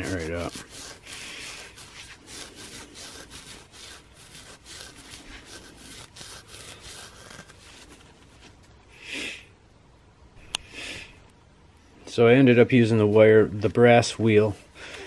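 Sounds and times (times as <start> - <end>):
abrasive pad scrubbing metal: 0.0 - 8.0.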